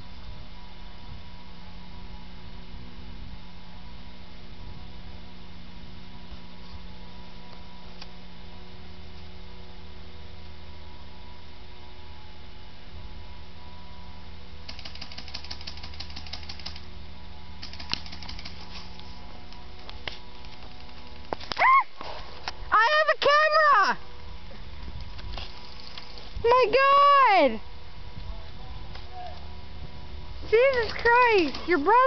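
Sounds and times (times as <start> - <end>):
steady electrical hum: 0.0 - 32.0
rapid clicking: 14.7 - 16.9, 17.6 - 18.7.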